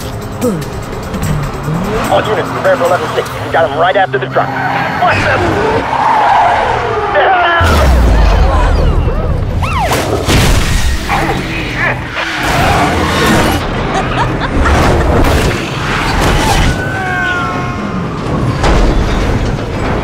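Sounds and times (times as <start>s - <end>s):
background music: 0.0s - 6.6s
crashing metal and booms: 18.4s - 20.0s.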